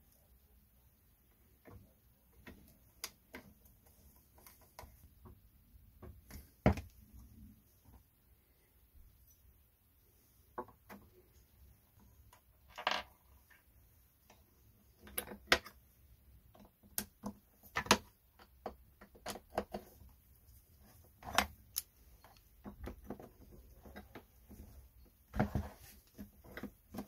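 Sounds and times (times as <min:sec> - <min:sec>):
plastic parts clicking and knocking: 0:14.2 - 0:15.8, 0:16.4 - 0:20.1, 0:21.0 - 0:27.0.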